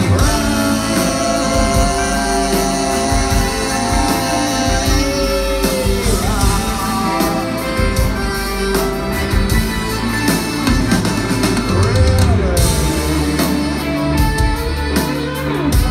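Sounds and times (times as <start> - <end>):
man singing: 0.0 - 8.8
live rock band playing: 0.0 - 15.9
saxophone: 0.0 - 15.9.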